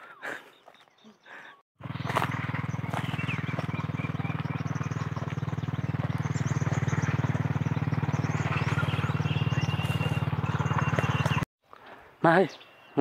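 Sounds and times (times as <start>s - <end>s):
small engine running: 1.8s - 11.5s.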